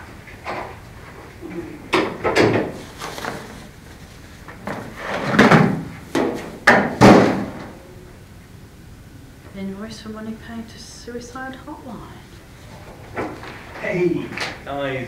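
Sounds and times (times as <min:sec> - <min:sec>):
paper rustling and shuffling: 0:02.6 - 0:05.8.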